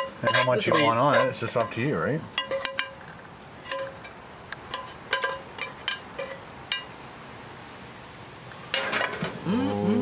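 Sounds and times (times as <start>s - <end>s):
metal tongs clinking on cookware: 0.0s - 1.8s, 2.4s - 3.0s, 3.6s - 6.9s.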